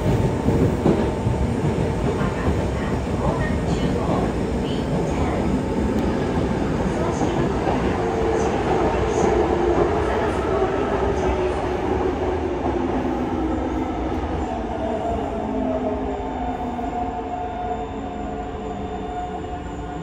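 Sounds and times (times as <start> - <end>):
rumble of train wheels on track: 0.0 - 17.8.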